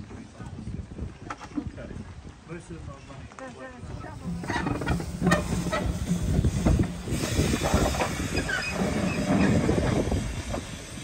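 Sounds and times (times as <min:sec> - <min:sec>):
wheels clattering on rails: 0:04.0 - 0:11.0
steam locomotive exhaust hiss: 0:04.2 - 0:11.0.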